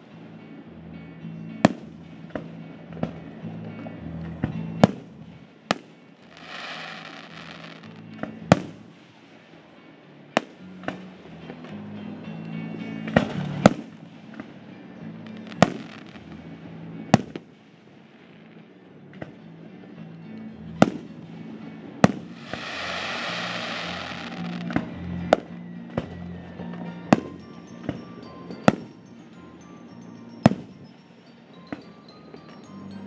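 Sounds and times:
background music: 0.0 - 33.0
fireworks bangs: 5.7 - 8.8, 15.3 - 16.3, 22.0 - 24.9
small firework pops: 5.7 - 8.9, 13.0 - 14.6, 15.3 - 16.4, 17.2 - 17.5, 20.8 - 21.2, 22.0 - 26.2
firework hissing rush: 22.3 - 24.7.

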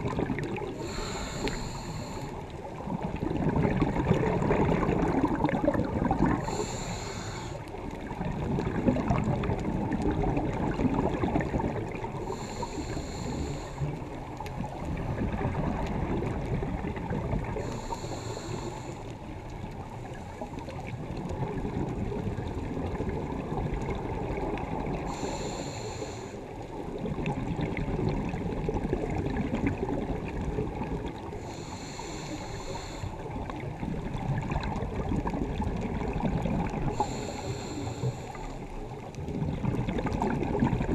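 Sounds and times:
exhaled air bubbling: 0.0 - 40.9
regulator inhale hiss: 0.6 - 2.6, 6.4 - 7.8, 12.2 - 14.1, 17.5 - 19.3, 25.0 - 26.7, 31.2 - 33.6, 36.9 - 38.8.

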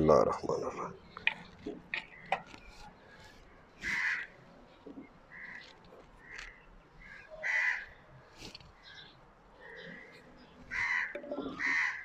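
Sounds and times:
crows cawing: 3.8 - 12.0.

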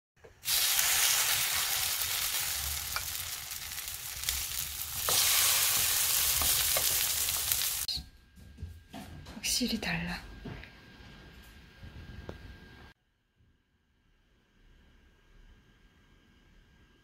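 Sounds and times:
batter sizzling in hot oil: 0.3 - 7.9.

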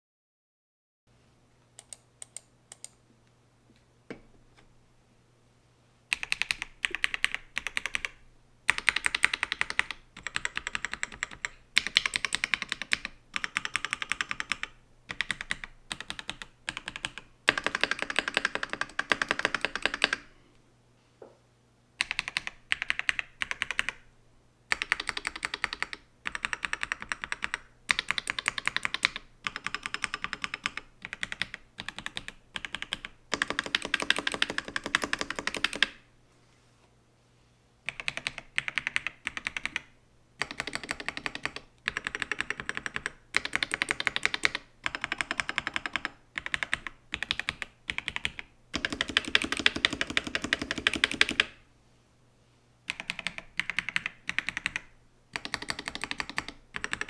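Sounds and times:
mechanical keyboard typing: 6.1 - 20.2, 22.0 - 24.0, 24.7 - 36.0, 37.9 - 51.6, 52.9 - 57.0.

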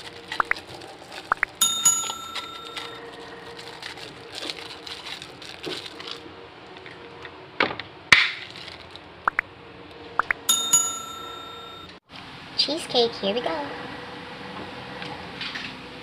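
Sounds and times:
bell ding sound effect: 1.5 - 3.0, 10.2 - 12.0.

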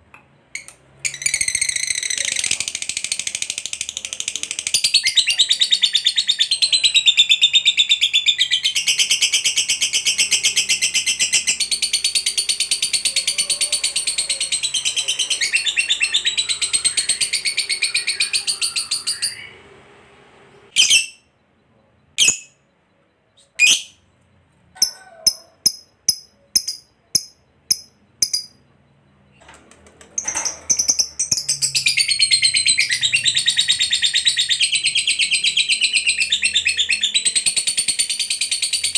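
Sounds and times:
lovebird chattering trill: 20.8 - 21.2, 22.2 - 22.6, 24.8 - 28.7.

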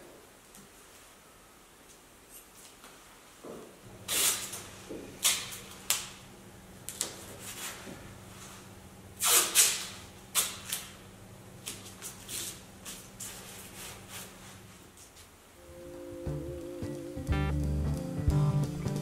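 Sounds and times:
faint steady hum: 0.0 - 19.0
masking tape ripping: 4.1 - 4.6, 5.2 - 6.1, 9.2 - 10.9.

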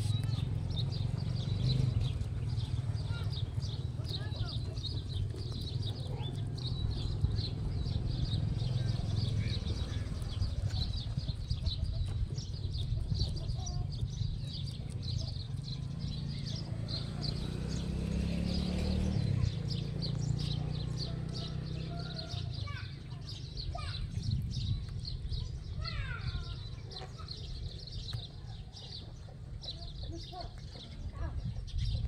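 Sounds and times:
rabbits chewing crunching: 3.8 - 7.8, 9.0 - 15.7
steady low rumble: 23.5 - 26.8.

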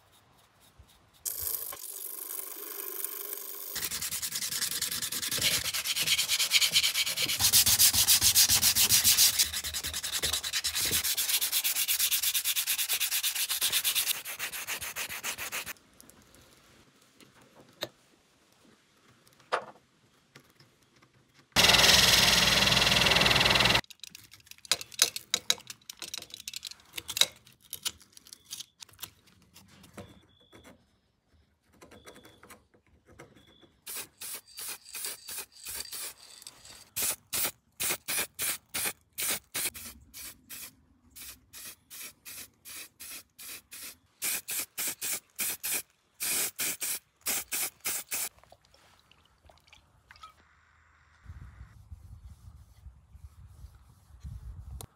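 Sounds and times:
aerosol spray bursts: 37.0 - 48.3.

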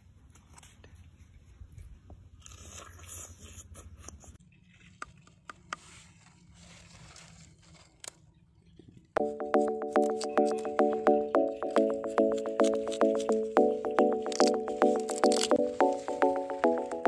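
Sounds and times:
crisp cracks: 9.6 - 17.0.

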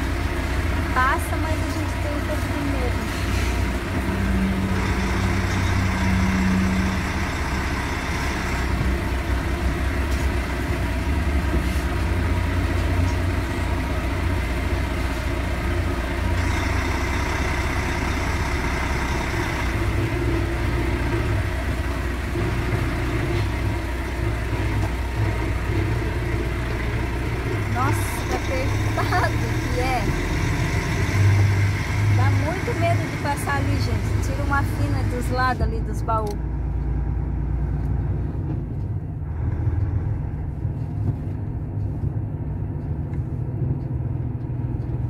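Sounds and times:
diesel truck engine: 0.0 - 45.0.

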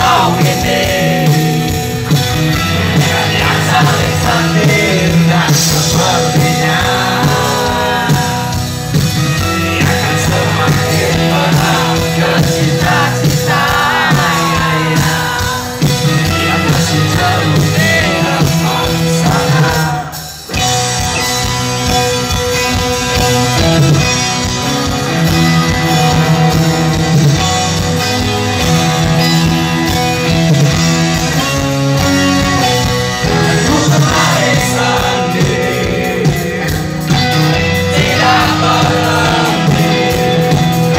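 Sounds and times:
person singing: 0.0 - 2.0, 2.6 - 8.8, 9.5 - 20.3, 33.2 - 40.9
live rock band playing: 0.0 - 40.9.

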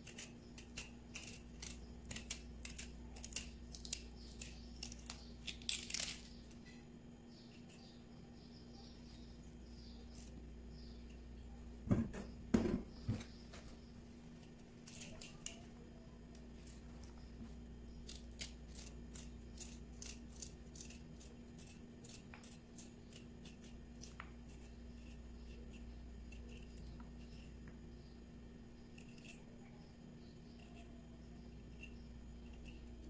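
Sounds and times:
knife cutting crisp vegetable: 0.0 - 6.3
knocks on cutting board: 11.9 - 13.2.

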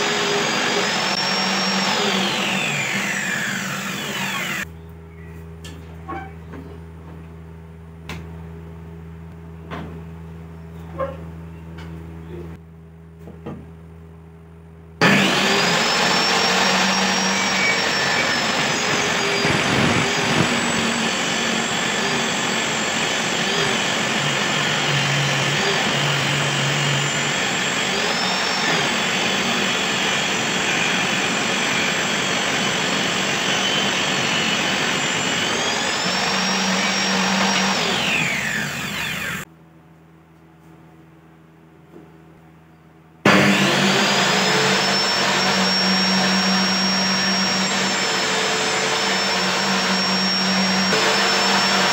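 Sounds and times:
table saw cutting wood: 0.0 - 4.7, 15.0 - 39.5, 43.3 - 51.9.

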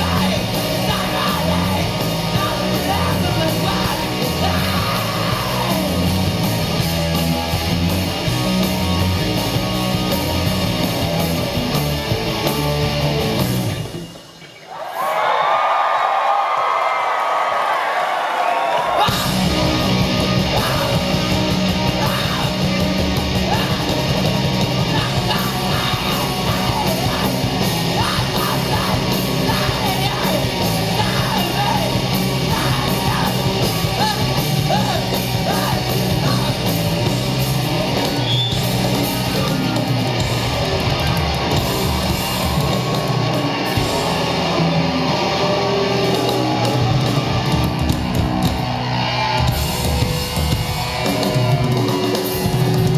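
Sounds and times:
person singing: 0.0 - 6.2, 19.1 - 36.9
rock band playing live: 0.0 - 14.6, 18.8 - 52.9.

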